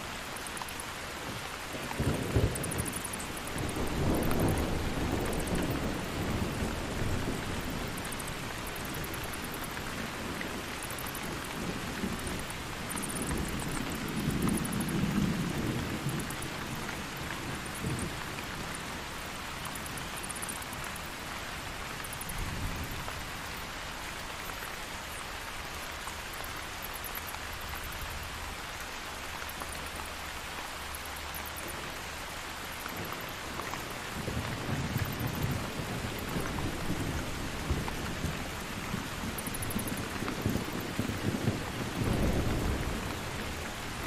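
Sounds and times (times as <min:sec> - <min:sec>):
steady rain: 0:00.0 - 0:44.0
low thunder rumbles: 0:01.8 - 0:19.0, 0:34.0 - 0:44.0.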